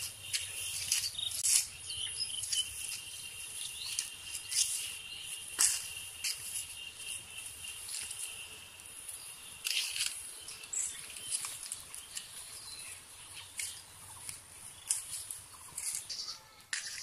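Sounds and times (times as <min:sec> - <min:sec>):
insects buzzing: 0:00.0 - 0:16.5.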